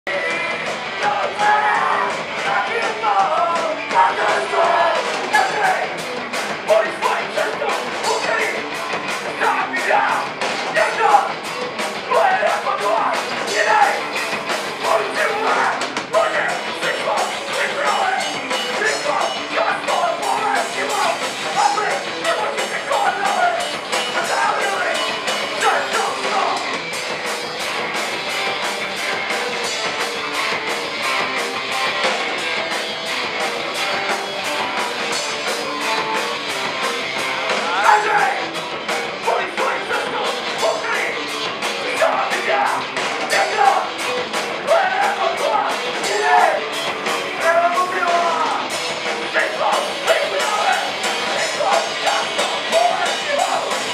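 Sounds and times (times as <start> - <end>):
shouted vocals: 0.1 - 6.0, 6.6 - 11.4, 12.0 - 14.2, 14.8 - 26.7, 37.5 - 38.6, 39.2 - 53.9
distorted electric guitar: 0.1 - 53.9
fast drumming with cymbals: 0.1 - 53.9.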